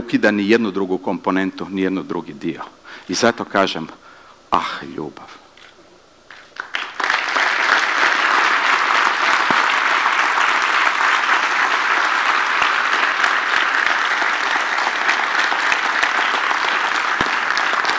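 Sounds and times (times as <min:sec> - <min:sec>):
audience applauding: 0:06.3 - 0:17.9.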